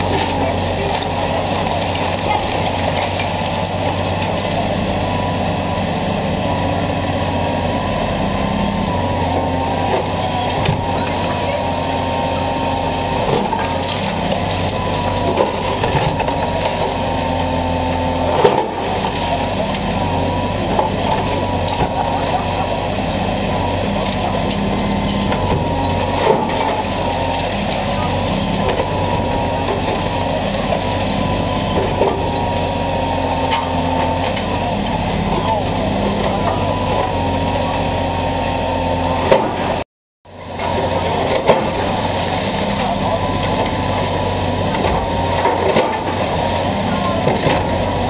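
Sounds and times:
diesel excavator engine running: 0:00.0 - 0:48.0
hydraulic whine: 0:00.0 - 0:48.0.

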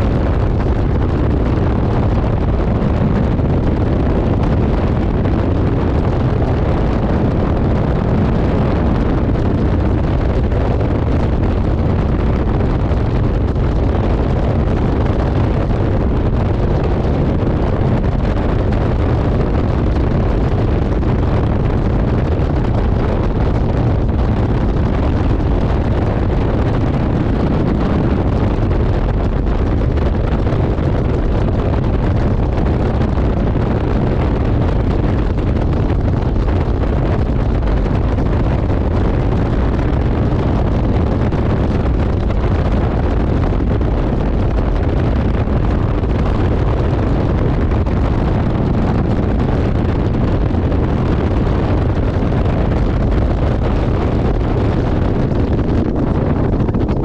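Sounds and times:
outboard motor drone: 0:00.0 - 0:57.0
wind buffeting microphone: 0:00.0 - 0:57.0.

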